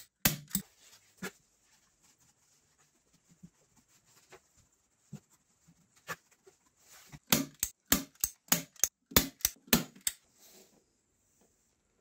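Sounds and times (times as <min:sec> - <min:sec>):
staple gun firing into wood: 0:07.3 - 0:10.2.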